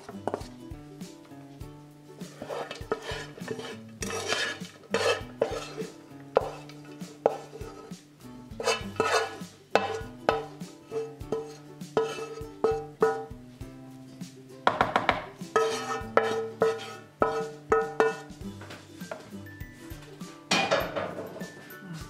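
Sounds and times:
wooden spoon scraping a pan: 0:00.0 - 0:00.6, 0:02.2 - 0:13.4, 0:14.7 - 0:21.8
spoon clattering on metal tin: 0:20.5 - 0:21.5.

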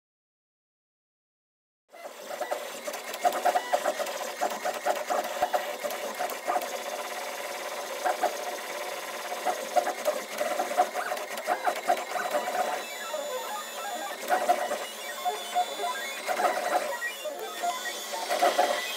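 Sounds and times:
stepper motors whirring: 0:01.9 - 0:18.9.

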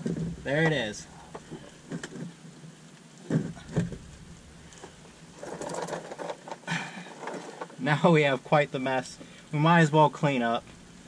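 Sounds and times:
metal clattering rattle: 0:03.2 - 0:07.8
scattered knocks: 0:03.3 - 0:04.1.

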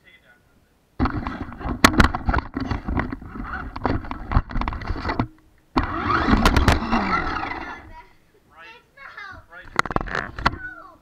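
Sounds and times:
knocking and clattering on camera: 0:01.0 - 0:05.4, 0:09.7 - 0:10.6.

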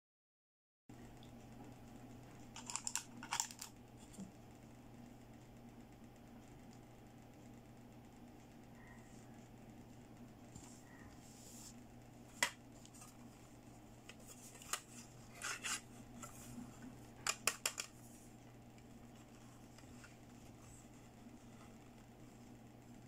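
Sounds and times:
hard plastic pieces clicking: 0:02.6 - 0:03.7, 0:17.2 - 0:18.0.

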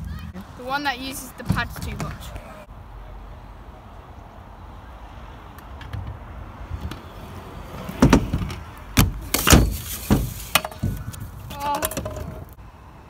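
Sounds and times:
scooter wheels rolling on tarmac: 0:05.8 - 0:12.6
scooter clattering down: 0:07.9 - 0:12.6.

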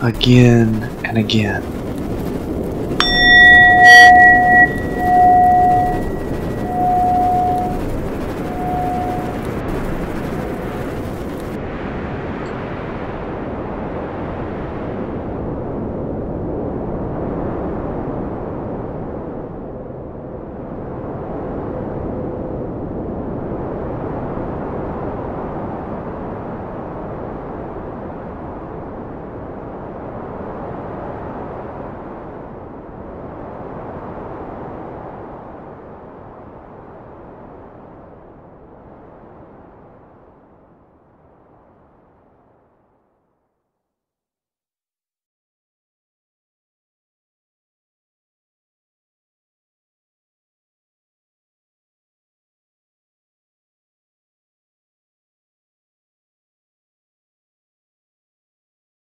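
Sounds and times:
bell-like ringing tone: 0:03.0 - 0:11.5
low rumbling drone: 0:03.0 - 0:11.6.

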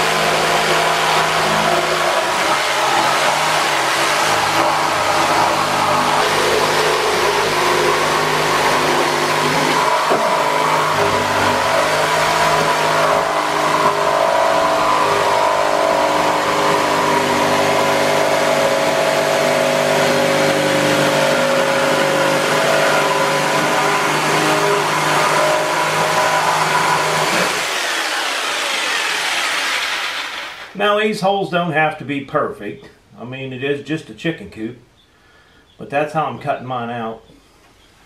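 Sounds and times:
jigsaw cutting wood: 0:00.0 - 0:30.8.

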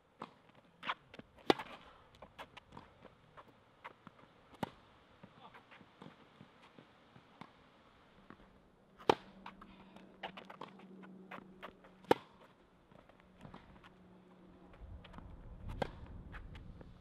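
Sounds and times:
racket hitting tennis ball: 0:00.2 - 0:04.8, 0:09.0 - 0:09.6, 0:10.2 - 0:12.6, 0:15.7 - 0:16.0
footsteps on court: 0:08.2 - 0:17.0.

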